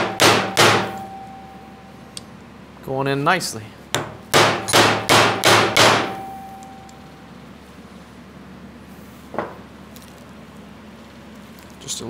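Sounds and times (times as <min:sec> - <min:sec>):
mallet striking steel driver: 0:00.0 - 0:01.5, 0:04.0 - 0:07.0
faint metallic ring: 0:00.9 - 0:02.1, 0:06.1 - 0:07.5.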